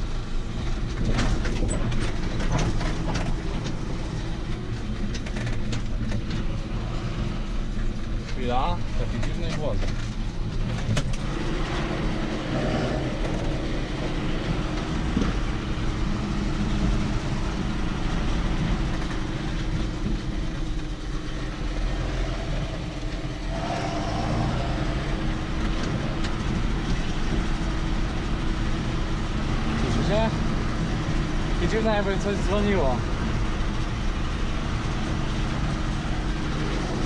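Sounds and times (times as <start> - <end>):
rattling clattering over cobblestones: 0.0 - 37.0
tractor engine drone: 0.0 - 37.0.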